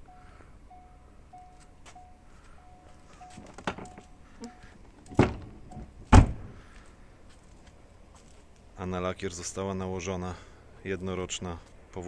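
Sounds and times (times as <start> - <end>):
car warning chime beeping: 0.0 - 6.1
car door slamming: 5.0 - 6.6
thump: 5.1 - 6.6.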